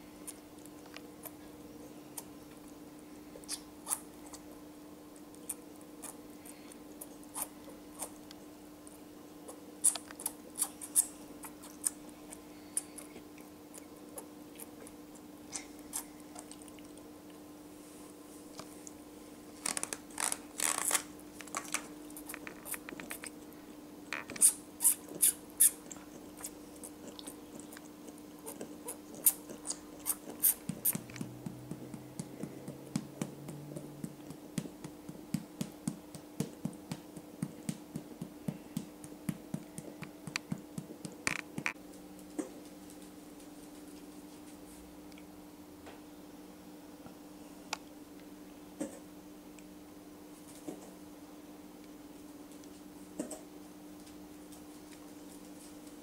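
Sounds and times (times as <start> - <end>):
faint steady hum: 0.0 - 56.0
animal sucking and lip-smacking: 24.4 - 38.3.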